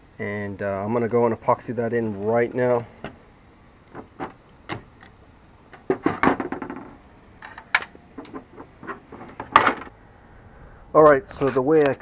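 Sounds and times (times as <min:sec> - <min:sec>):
metal brackets clicking and clattering: 0:04.0 - 0:09.9.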